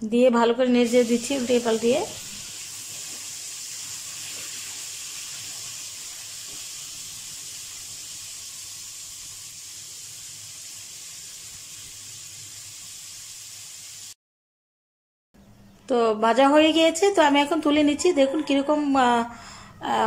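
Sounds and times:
food sizzling in hot oil: 0:00.6 - 0:14.2.

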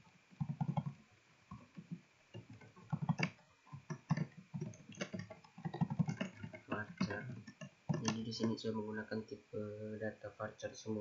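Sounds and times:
keyboard keystroke clicks: 0:02.8 - 0:08.2.

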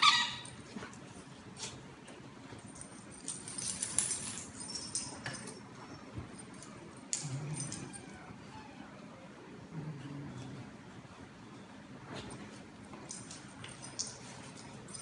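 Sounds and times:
light clicks and jingles: 0:02.1 - 0:08.2, 0:12.2 - 0:15.0.

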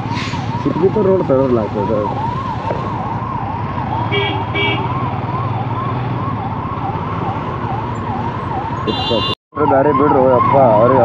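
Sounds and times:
emergency siren wailing: 0:00.0 - 0:11.0
short horn beeps: 0:08.9 - 0:09.4.

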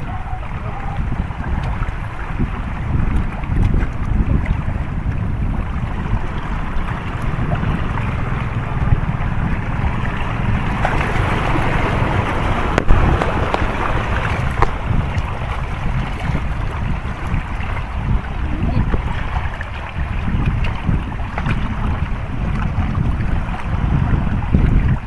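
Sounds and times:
sea waves washing against rocks: 0:00.0 - 0:25.0
wind buffeting microphone: 0:00.0 - 0:25.0.

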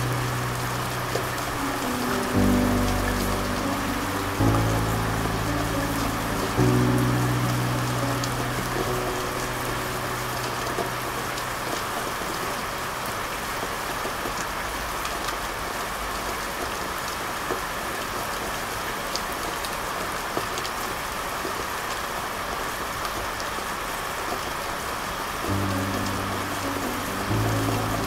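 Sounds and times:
rain drop ticks: 0:00.0 - 0:15.5, 0:25.4 - 0:28.0
steady rain hiss: 0:00.0 - 0:28.0.

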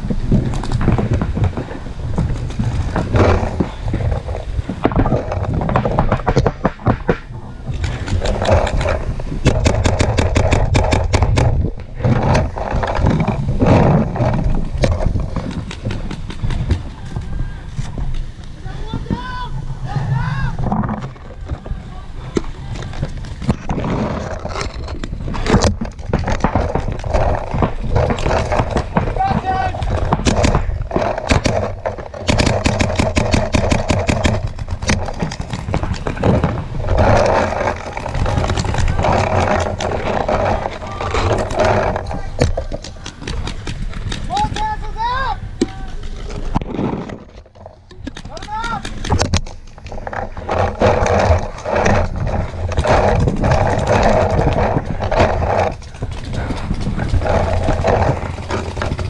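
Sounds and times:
paintball markers firing: 0:06.0 - 0:11.6, 0:25.4 - 0:36.0.

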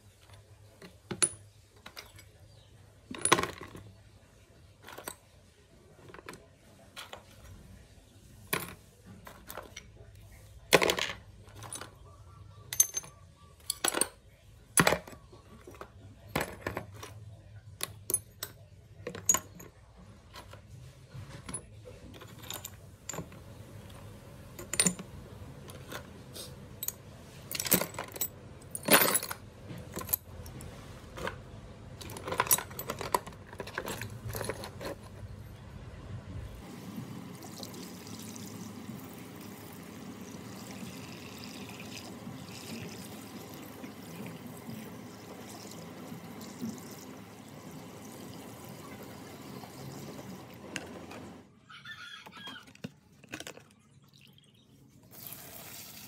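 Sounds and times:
metal parts and tools clinking: 0:00.1 - 0:04.0, 0:04.7 - 0:05.4, 0:08.4 - 0:10.1, 0:10.7 - 0:35.6.

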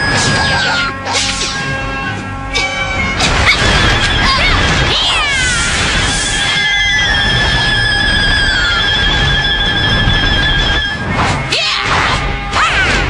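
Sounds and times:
dramatic film score music: 0:00.0 - 0:13.0.

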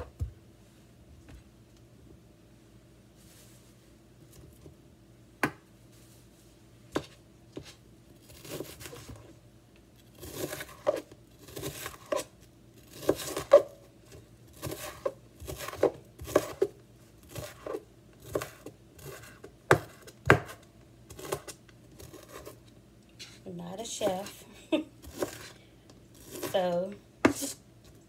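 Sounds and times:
knife cutting onion on board: 0:07.0 - 0:09.2, 0:10.2 - 0:12.3, 0:12.9 - 0:22.6, 0:25.0 - 0:25.5, 0:26.2 - 0:27.6.

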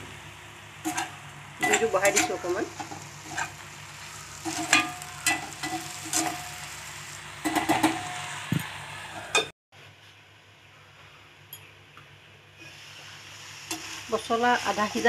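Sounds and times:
food sizzling in a pan: 0:00.0 - 0:09.5, 0:12.6 - 0:15.0
metal spatula scraping a pan: 0:00.8 - 0:03.6, 0:04.3 - 0:06.7
faint hiss under a lid: 0:12.6 - 0:15.0.

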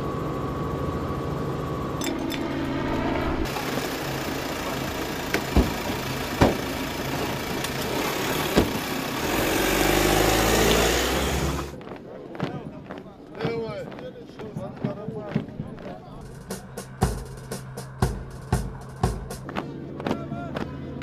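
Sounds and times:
vehicle engine running: 0:00.0 - 0:11.9
low rumble: 0:01.4 - 0:03.6.

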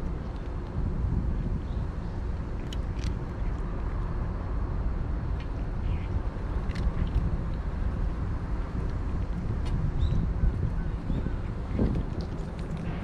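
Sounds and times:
low background rumble: 0:00.0 - 0:13.0
cat chewing dry food: 0:02.5 - 0:04.0.

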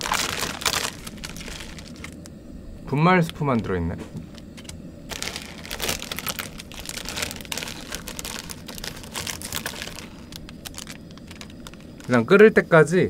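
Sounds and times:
plastic packet crinkling: 0:00.0 - 0:02.3, 0:04.6 - 0:12.2.

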